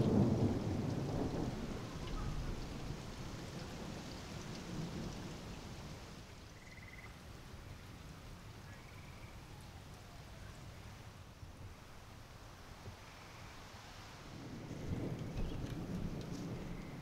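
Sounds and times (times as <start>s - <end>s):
thunder rumbling: 0.0s - 5.9s, 14.2s - 17.0s
rain and wind hiss: 0.0s - 17.0s.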